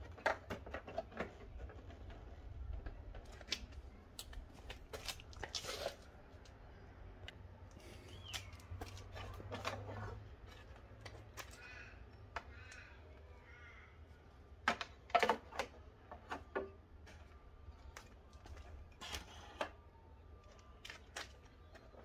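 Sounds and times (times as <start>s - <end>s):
harsh bird calls: 7.8s - 8.7s, 11.5s - 14.2s.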